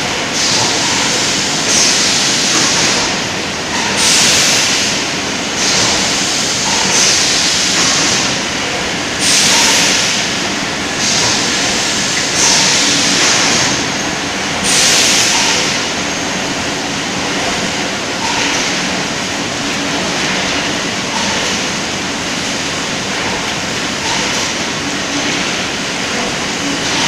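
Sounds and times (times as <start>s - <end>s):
bottle conveyor rumbling and rattling: 0.0s - 27.0s
hiss: 4.0s - 5.0s, 9.2s - 10.3s, 14.6s - 15.8s.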